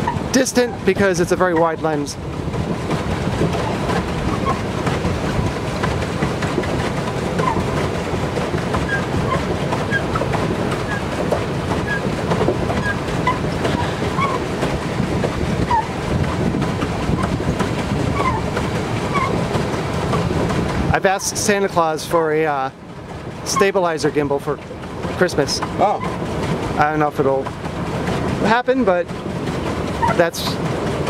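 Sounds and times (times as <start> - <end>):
paddle wheel churning water: 0.0 - 31.0.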